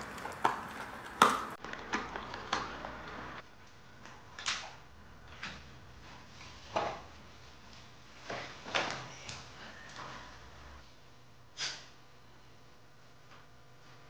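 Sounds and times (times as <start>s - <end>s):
dog gnawing on chew bone: 0.0s - 2.8s.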